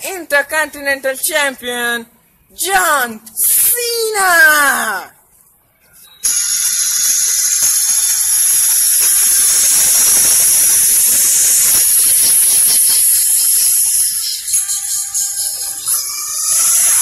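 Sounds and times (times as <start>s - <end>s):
loud steady hiss: 6.2s - 17.0s.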